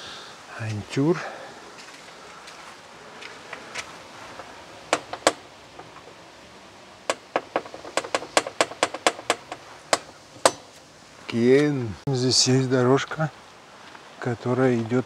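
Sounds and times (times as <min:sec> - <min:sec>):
ring knocker rapping metal door: 0:07.1 - 0:10.7.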